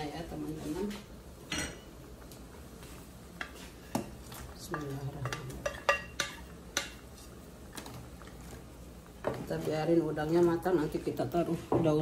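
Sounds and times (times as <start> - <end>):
wooden spatula clinking on pot: 4.0 - 7.3.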